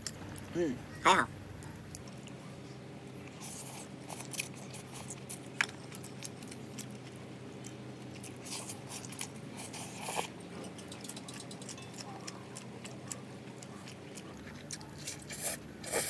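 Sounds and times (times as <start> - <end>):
noodles slurped and chewed: 1.9 - 16.0.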